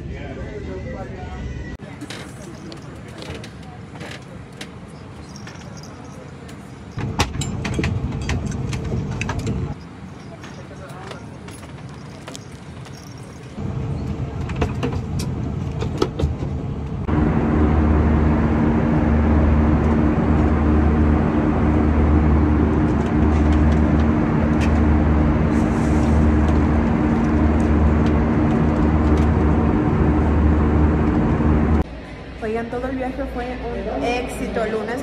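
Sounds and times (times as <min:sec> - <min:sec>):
jet engine cabin noise: 0:00.6 - 0:35.0
low throb: 0:17.1 - 0:31.8.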